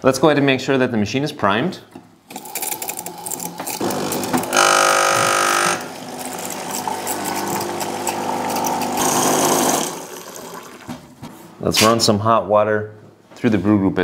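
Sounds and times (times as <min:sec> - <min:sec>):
espresso machine pump buzzing: 0:02.3 - 0:10.8.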